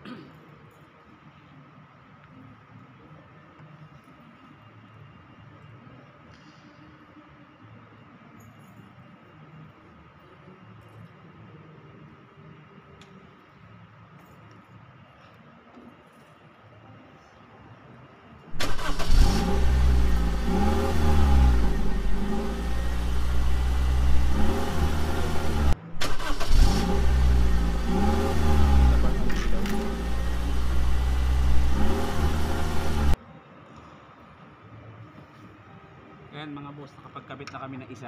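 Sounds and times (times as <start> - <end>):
car engine revving: 18.6 - 33.2.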